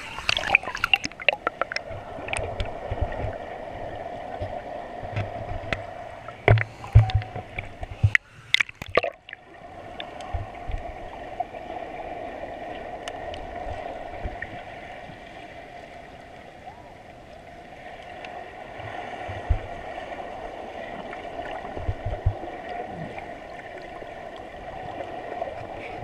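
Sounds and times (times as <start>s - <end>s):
muffled underwater rush of water: 0.0s - 26.0s
loud thumps: 6.4s - 7.4s.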